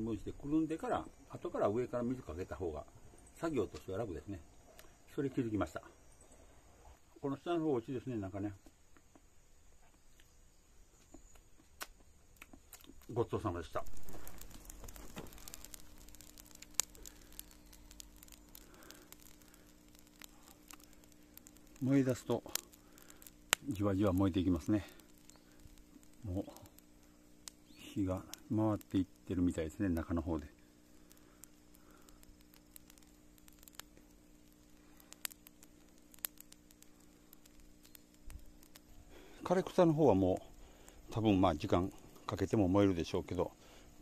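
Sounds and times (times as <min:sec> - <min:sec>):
burning weeds crackling and popping: 0:00.0 - 0:44.0
faint low hum: 0:00.0 - 0:44.0
rustling: 0:12.5 - 0:28.2.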